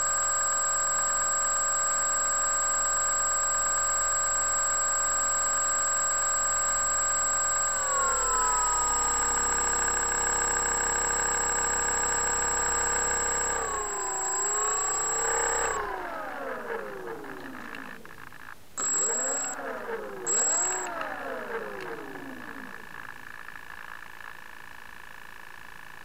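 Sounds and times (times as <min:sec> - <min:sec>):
thin high whine: 0:05.2 - 0:23.8
electric motor and propeller whining: 0:06.5 - 0:23.6.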